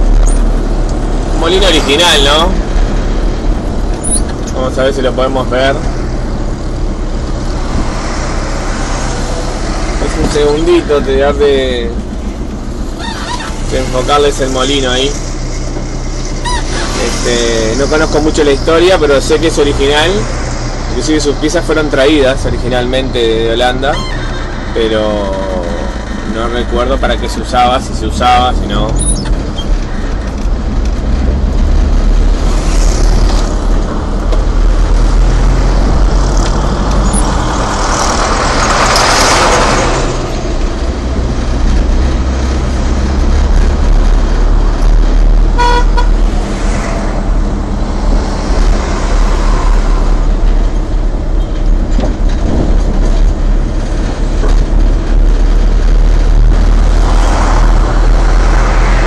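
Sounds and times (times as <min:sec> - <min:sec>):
car engine and road rumble: 0:00.0 - 0:59.0
passing vehicle rush: 0:00.0 - 0:59.0
car horn toot: 0:16.4 - 0:16.9, 0:45.5 - 0:46.2.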